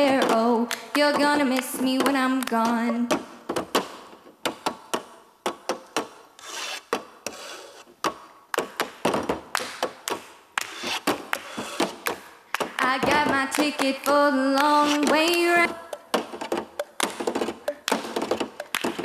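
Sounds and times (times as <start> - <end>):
hand claps: 0.6 - 2.8, 8.5 - 19.0
plastic cups tapping on tabletop: 8.0 - 19.0.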